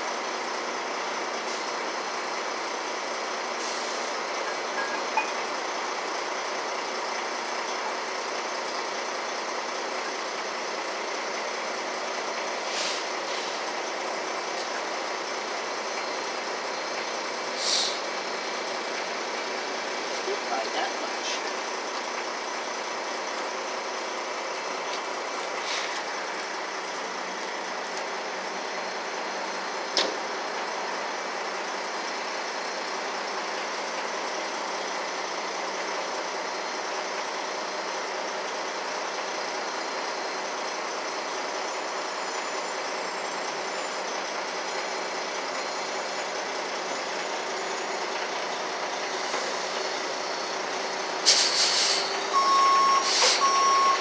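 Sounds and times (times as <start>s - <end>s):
truck engine idling: 0.0s - 54.0s.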